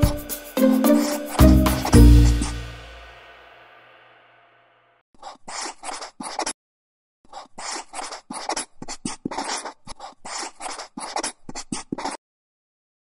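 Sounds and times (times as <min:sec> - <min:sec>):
pen scratching on paper: 0:00.8 - 0:02.7, 0:05.2 - 0:06.6, 0:07.3 - 0:12.2.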